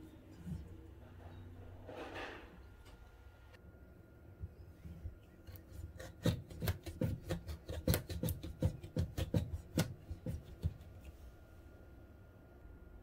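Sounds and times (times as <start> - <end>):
knife cracking through squash rind: 5.5 - 10.7.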